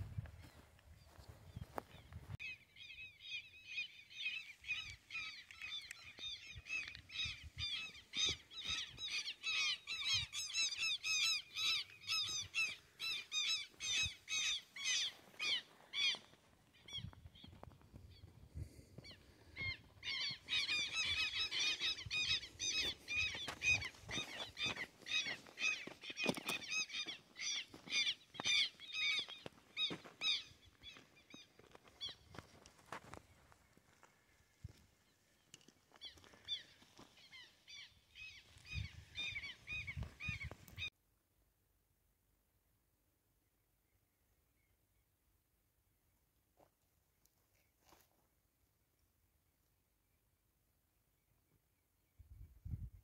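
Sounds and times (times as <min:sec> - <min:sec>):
bird harsh repeated calls: 0:02.4 - 0:17.6, 0:19.0 - 0:32.3, 0:35.9 - 0:40.9.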